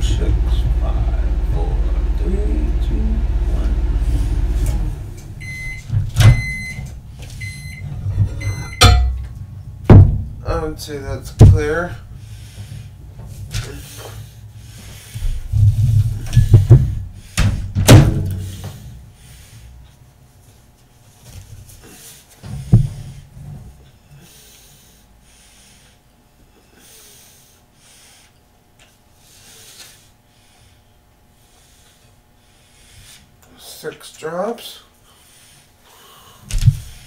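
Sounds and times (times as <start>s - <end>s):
low rumble: 0.0s - 5.8s
person breathing: 4.0s - 4.6s, 12.1s - 13.0s, 13.7s - 17.6s, 18.4s - 19.8s, 24.1s - 28.4s, 35.0s - 37.0s
knocks and thumps: 7.7s - 10.4s, 11.4s - 11.7s, 15.2s - 18.8s, 22.4s - 23.2s, 36.5s - 36.9s.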